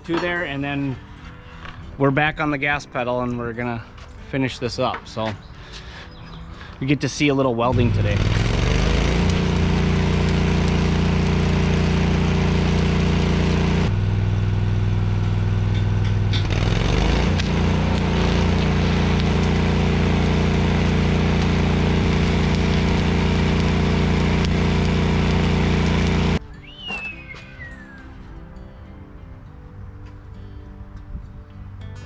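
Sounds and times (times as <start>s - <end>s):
welder engine running: 7.7s - 26.4s.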